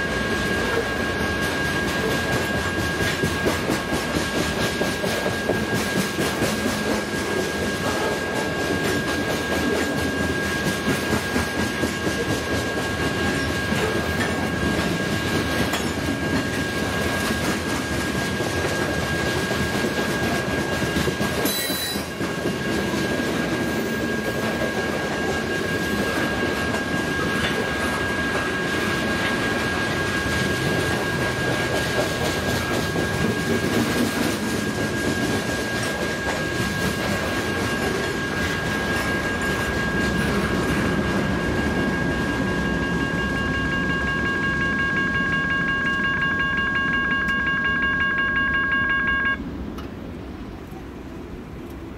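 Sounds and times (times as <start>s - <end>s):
train wheels rumbling on rail: 0.0s - 51.9s
high-pitched wheel squeal: 21.4s - 29.0s.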